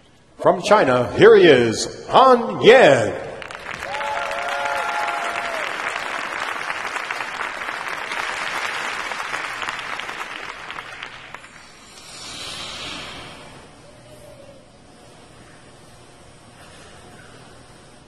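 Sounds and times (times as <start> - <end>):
crowd applauding: 3.3 - 11.8.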